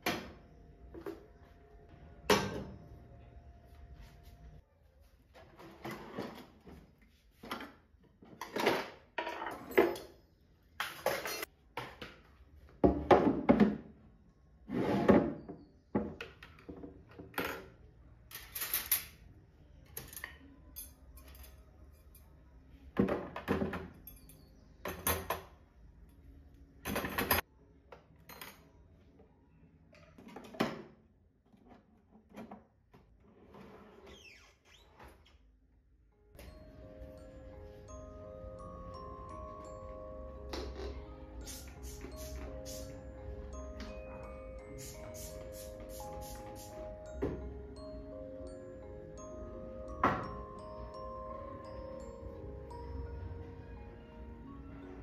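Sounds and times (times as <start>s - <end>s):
household objects knocking and clattering: 10.8s - 13.9s.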